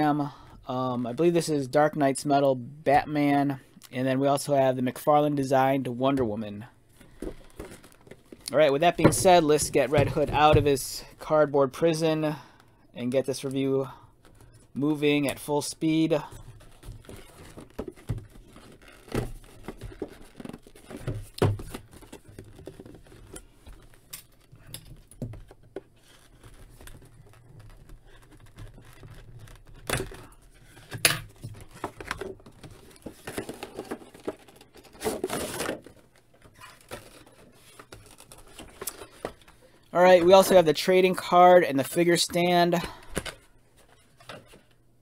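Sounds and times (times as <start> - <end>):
plastic tray rustling: 15.4 - 41.3
cardboard box being opened: 16.4 - 24.5, 25.1 - 39.5.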